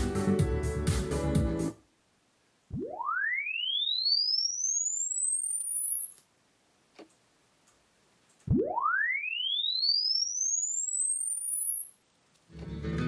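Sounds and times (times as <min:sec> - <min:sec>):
rising frequency sweep tone: 0:08.5 - 0:13.0.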